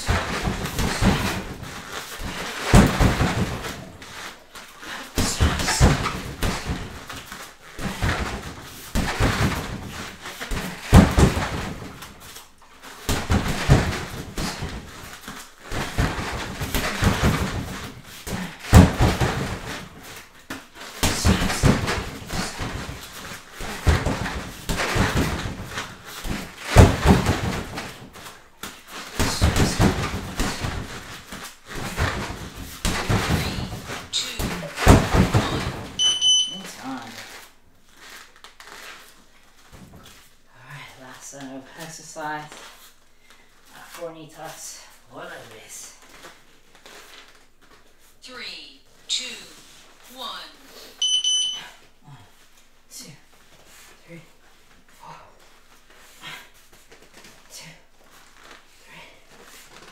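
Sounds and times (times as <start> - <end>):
kicks thudding on heavy bag: 0.0 - 4.0, 5.1 - 7.1, 7.8 - 12.2, 13.1 - 15.1, 15.7 - 20.0, 21.0 - 28.2, 29.1 - 36.0.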